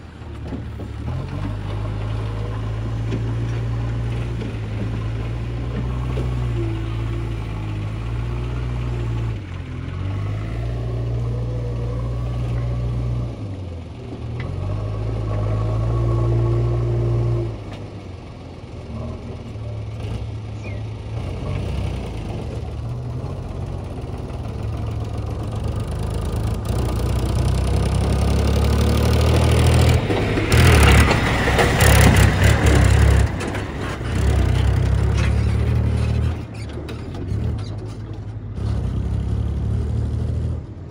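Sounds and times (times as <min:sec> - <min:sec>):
diesel engine working under load: 0:00.0 - 0:40.9
loud clattering rattle of trolley: 0:21.6 - 0:39.1.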